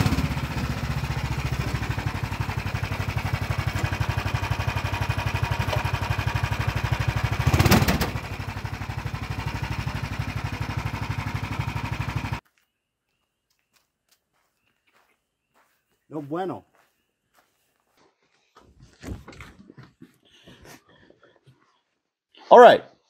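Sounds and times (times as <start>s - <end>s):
golf cart engine pulsing: 0.0s - 12.4s.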